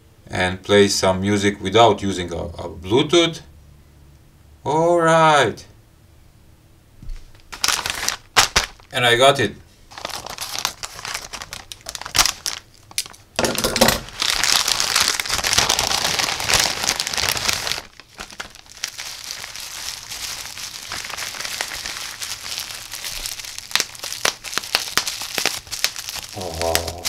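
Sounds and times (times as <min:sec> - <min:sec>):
plastic mailer bag rustling: 0:07.4 - 0:08.9, 0:09.9 - 0:27.0
bubble-wrap bag crinkling: 0:07.4 - 0:09.0, 0:09.9 - 0:27.0.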